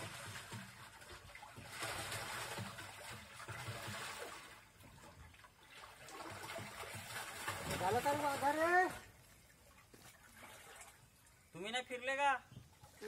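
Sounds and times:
paddle wheel churning water: 0:00.0 - 0:13.0.

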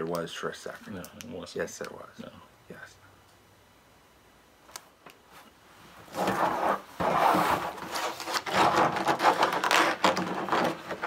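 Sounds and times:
vinyl rolls rubbing and knocking: 0:05.9 - 0:11.0.

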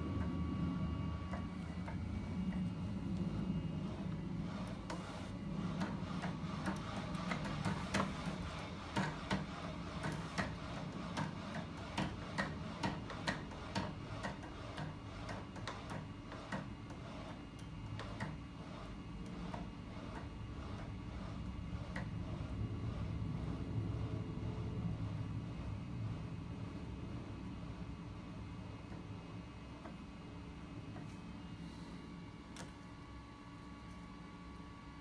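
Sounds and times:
machine running with low hum: 0:00.0 - 0:35.0.

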